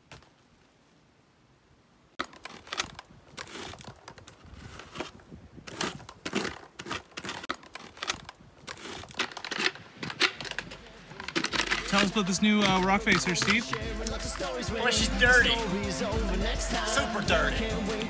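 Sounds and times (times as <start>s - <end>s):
scraping tearing and crackling: 2.2s - 14.5s.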